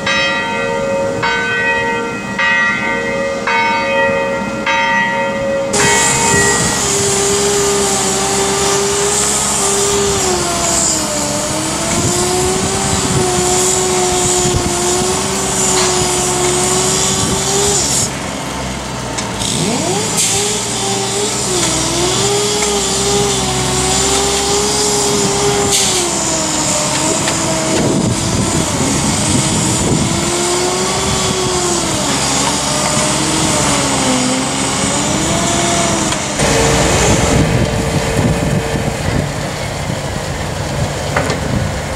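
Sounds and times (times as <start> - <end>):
heavy machinery engine running: 5.7 - 41.9.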